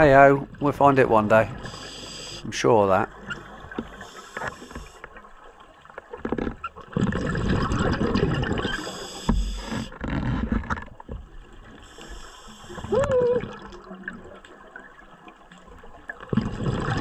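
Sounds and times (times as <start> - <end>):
diver breathing through regulator: 1.6 - 2.5, 3.8 - 5.0, 11.8 - 13.0
bubbling exhale underwater: 6.9 - 9.1, 16.3 - 17.0.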